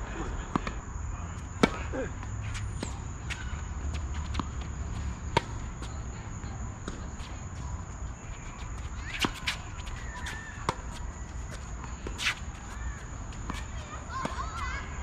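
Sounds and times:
rackets striking tennis ball: 1.5 - 14.8
ball bouncing on hard court: 2.8 - 7.8, 8.5 - 14.4.

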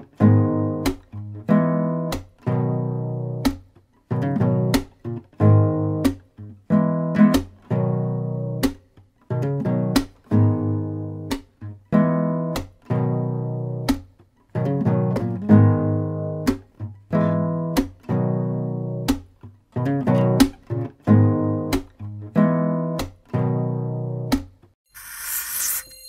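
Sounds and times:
strummed acoustic guitar: 0.0 - 24.6.

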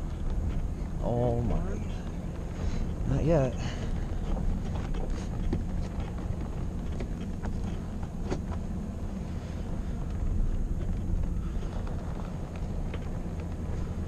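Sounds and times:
truck engine and tyre rumble: 0.0 - 14.0.

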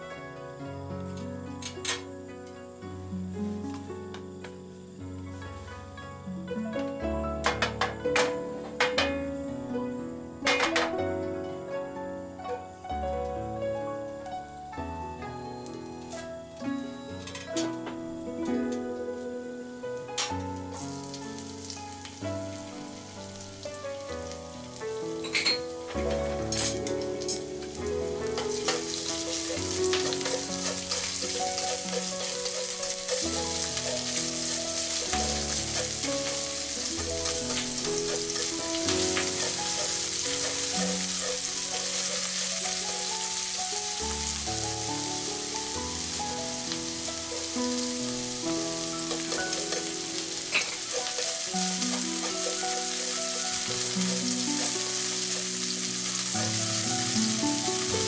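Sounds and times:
garlic sizzling in hot oil: 13.8 - 58.0.

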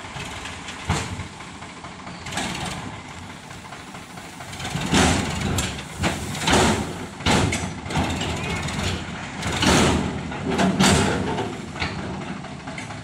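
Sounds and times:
tractor diesel engine running: 0.0 - 13.0
sand rushing: 3.2 - 7.2.

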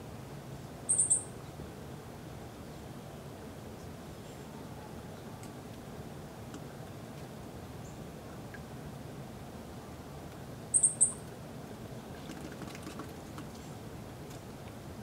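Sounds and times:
outdoor ambience hiss: 0.0 - 15.0
high-pitched bird chirps: 0.9 - 1.3, 10.7 - 11.2.

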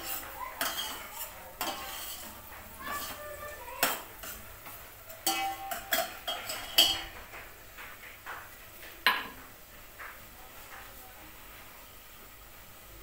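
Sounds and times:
metal utensils clinking: 0.0 - 7.2.

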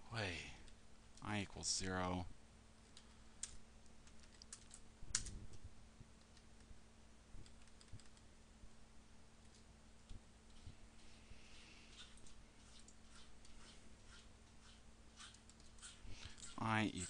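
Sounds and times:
faint steady hum: 0.0 - 17.0
keyboard keystrokes: 7.4 - 8.2.

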